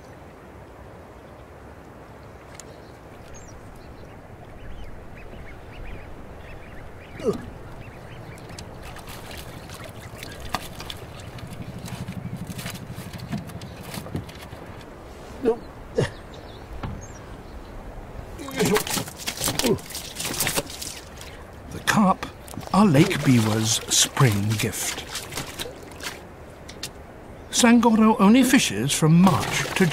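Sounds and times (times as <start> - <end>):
water splashing: 5.4 - 14.8, 18.2 - 29.9
low buzzing rattle: 10.7 - 14.4.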